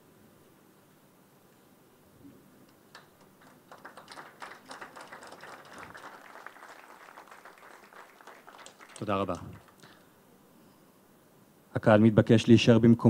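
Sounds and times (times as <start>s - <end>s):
audience applauding: 2.9s - 10.0s.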